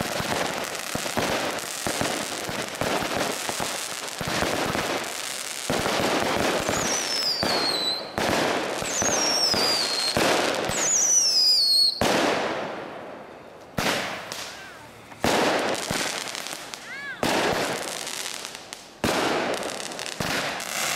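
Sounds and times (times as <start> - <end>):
fireworks bangs: 0.0 - 20.9
fireworks crackling: 0.0 - 20.9
falling firework whistles: 6.2 - 12.4, 13.6 - 18.2.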